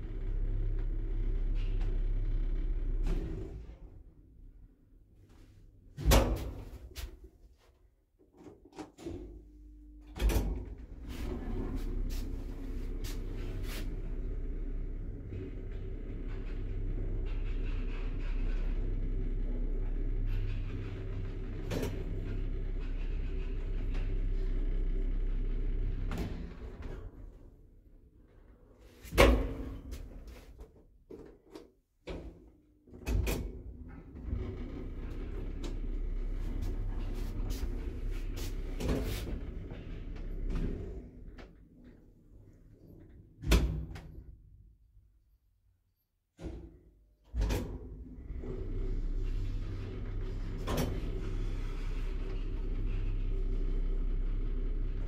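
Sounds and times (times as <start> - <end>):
lift running with low rumble: 9.4 - 28.7, 33.8 - 43.0, 48.0 - 55.0
lift humming: 34.8 - 40.5.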